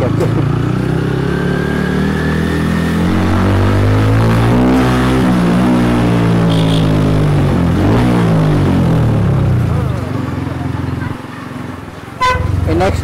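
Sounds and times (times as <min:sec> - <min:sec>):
motorcycle engine revving in low gear: 0:00.3 - 0:09.7.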